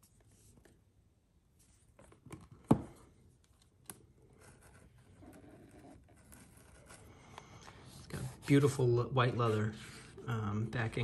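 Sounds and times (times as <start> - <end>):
soft rubbing and shuffling: 0.0 - 0.8, 1.5 - 2.1, 4.4 - 11.0.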